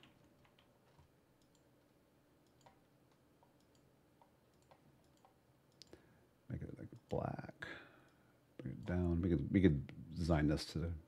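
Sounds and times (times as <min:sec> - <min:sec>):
computer mouse clicks: 0:00.0 - 0:01.7, 0:02.4 - 0:06.0.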